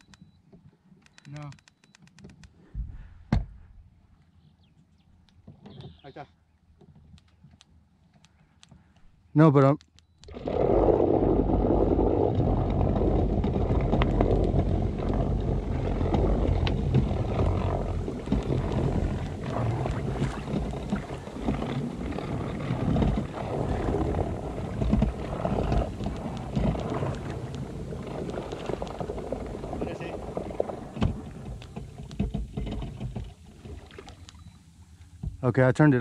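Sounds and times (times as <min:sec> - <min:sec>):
propeller churning water: 0:10.2 - 0:36.0
electric trolling motor humming: 0:10.3 - 0:34.8.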